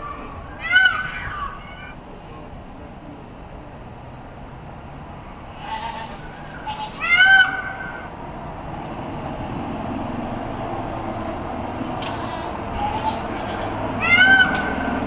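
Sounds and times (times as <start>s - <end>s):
peacock honking call: 0.0s - 2.3s, 5.5s - 8.2s, 11.2s - 15.0s.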